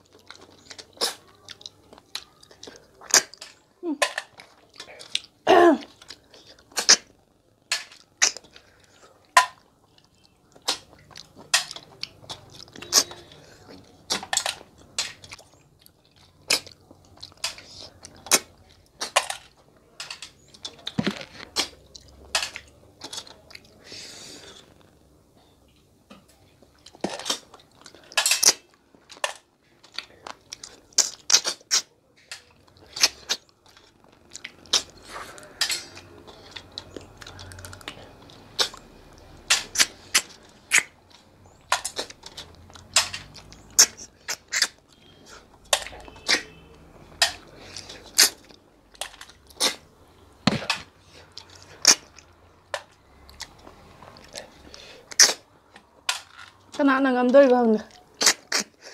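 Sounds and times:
chewing: 0:00.0 - 0:58.9
people slurping snails: 0:00.1 - 0:07.3, 0:29.7 - 0:48.7, 0:49.3 - 0:50.4, 0:51.0 - 0:56.0.

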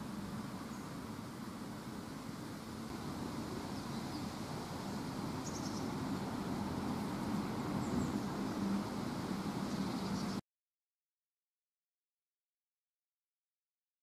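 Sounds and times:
low rumbling hum with hiss: 0:00.0 - 0:10.4.

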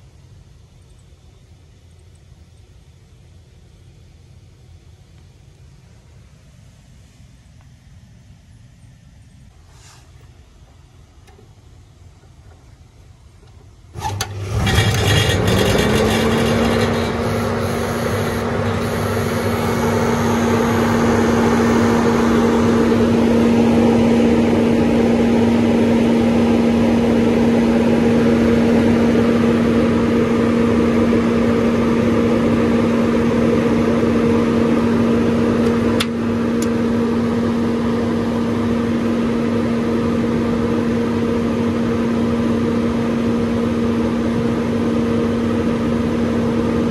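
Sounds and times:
blower fan humming: 0:09.2 - 0:46.9
rush of air: 0:09.5 - 0:10.2.

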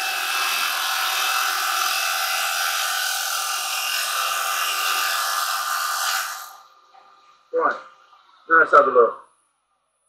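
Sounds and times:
wood lathe whirring: 0:00.0 - 0:06.7.

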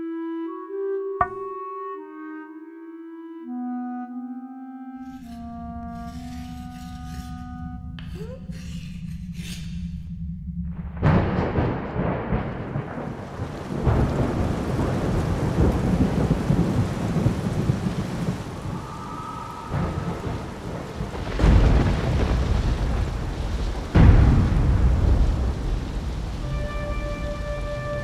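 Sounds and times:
rolling thunder: 0:10.6 - 0:28.0
heavy rain falling: 0:11.0 - 0:28.0.

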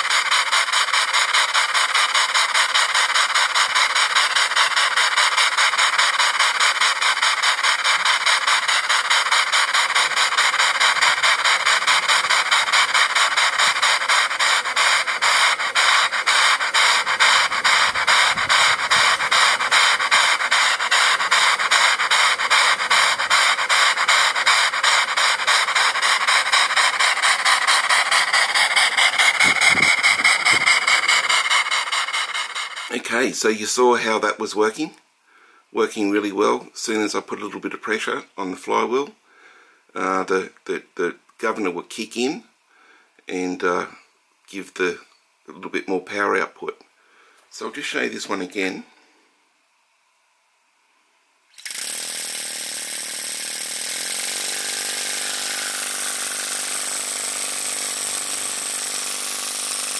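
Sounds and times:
steam engine exhaust hissing: 0:00.0 - 0:38.7, 0:51.5 - 0:59.9.

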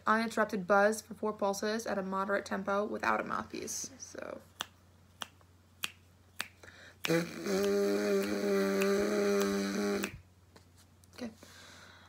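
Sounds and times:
lip buzzing steady pitch: 0:04.6 - 0:10.3.

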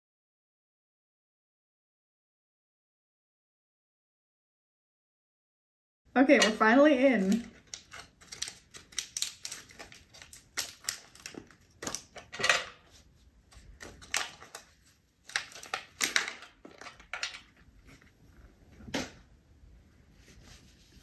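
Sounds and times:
plastic pouch crinkling: 0:07.2 - 0:17.6.

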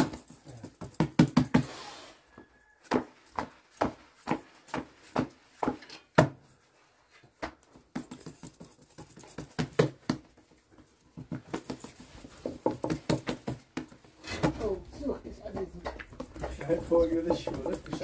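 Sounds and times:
hands slapping dough: 0:02.9 - 0:06.4, 0:11.2 - 0:14.1.

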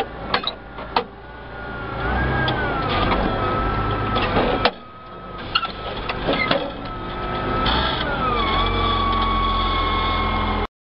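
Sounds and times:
tractor engine running: 0:00.0 - 0:10.7.

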